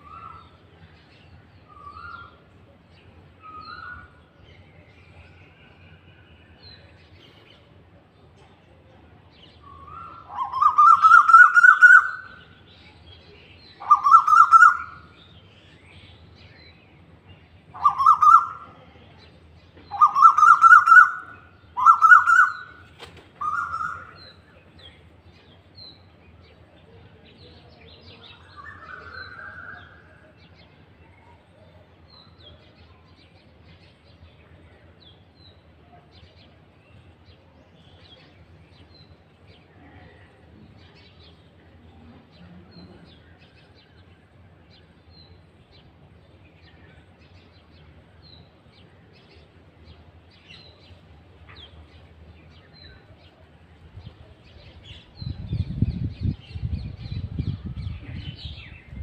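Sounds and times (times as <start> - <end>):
koel calling: 19.9 - 22.7.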